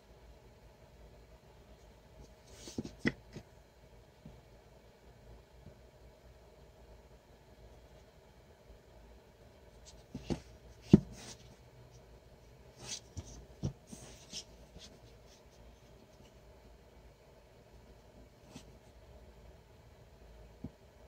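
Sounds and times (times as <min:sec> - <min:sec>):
wooden block rubbing and scraping: 0:02.4 - 0:03.4.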